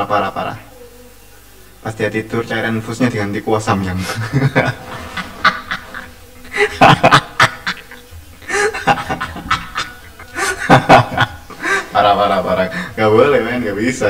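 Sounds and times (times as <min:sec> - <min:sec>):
man laughing hard: 0:04.0 - 0:13.0.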